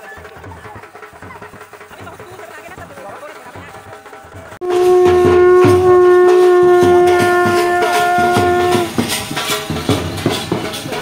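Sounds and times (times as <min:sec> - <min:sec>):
regular beat: 0:00.0 - 0:11.0
conch shell blown: 0:04.6 - 0:09.2.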